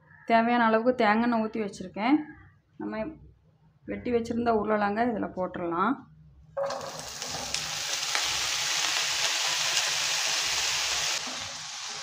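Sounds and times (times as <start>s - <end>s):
potatoes sizzling in hot oil: 6.6s - 12.0s.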